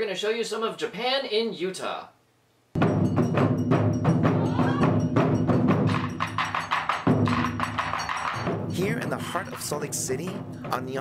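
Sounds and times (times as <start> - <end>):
taiko drums playing fast rhythm: 2.8 - 11.0.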